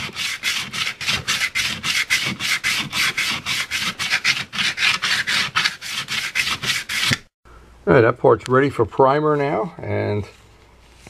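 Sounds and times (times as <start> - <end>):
sandpaper scraping filler: 0.0 - 7.3.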